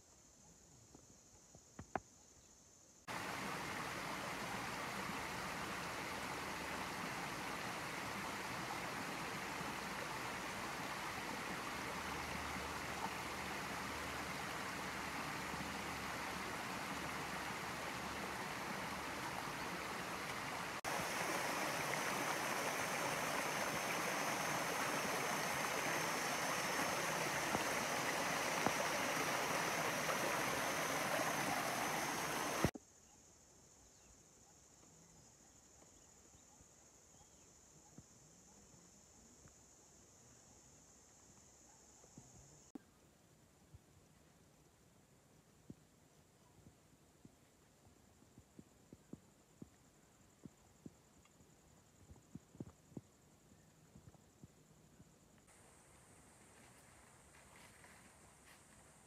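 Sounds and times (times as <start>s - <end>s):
stream rushing over rocks: 3.1s - 32.7s.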